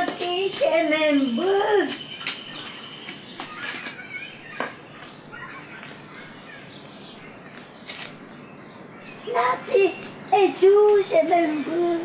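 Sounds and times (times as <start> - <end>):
birds chirping: 0.0 - 12.0
steady background hiss: 0.0 - 12.0.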